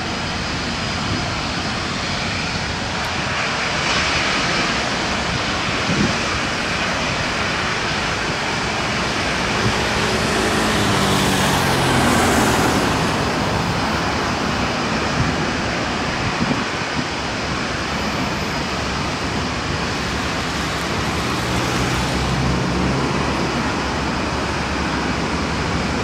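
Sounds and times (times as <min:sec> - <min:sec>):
jet engines rushing: 0:00.0 - 0:26.0
falling engine tone: 0:08.0 - 0:15.6.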